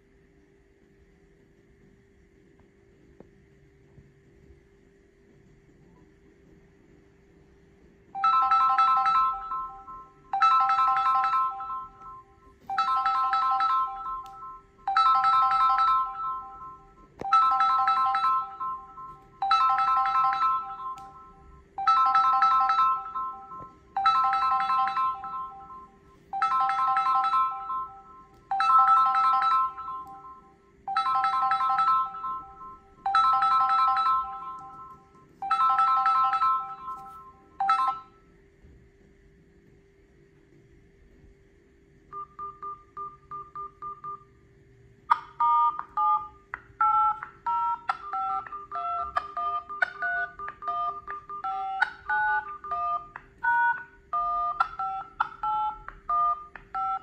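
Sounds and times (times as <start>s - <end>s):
phone ringtone: 8.1s - 38.3s, 42.1s - 44.4s, 45.1s - 57.0s.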